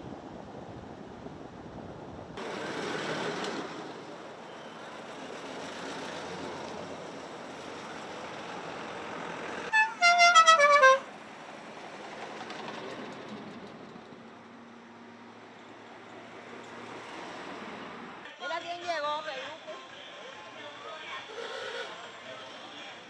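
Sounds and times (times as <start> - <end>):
musical car horn: 9.7 - 11.1
cars passing: 14.2 - 18.4.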